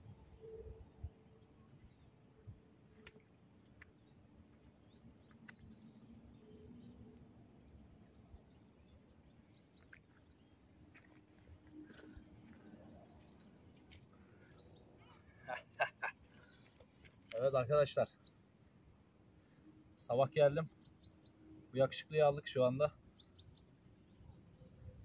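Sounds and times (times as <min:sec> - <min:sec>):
small clicks: 0:02.9 - 0:05.8.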